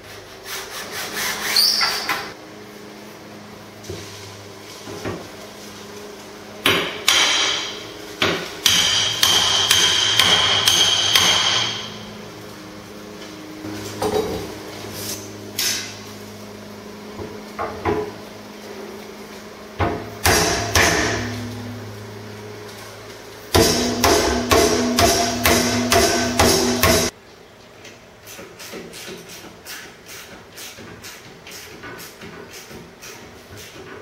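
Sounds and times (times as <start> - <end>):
hammer striking metal: 6.6 - 12.1, 19.8 - 21.9, 23.5 - 27.1
low steady hum: 16.0 - 27.5.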